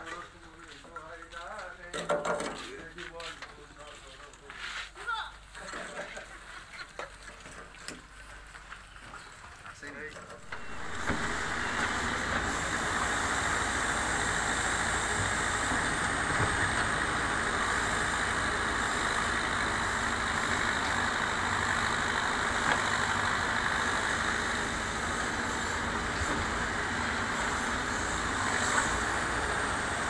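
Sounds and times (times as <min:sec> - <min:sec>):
backhoe digging soil: 0:05.5 - 0:30.0
diesel engine running under load: 0:10.4 - 0:30.0.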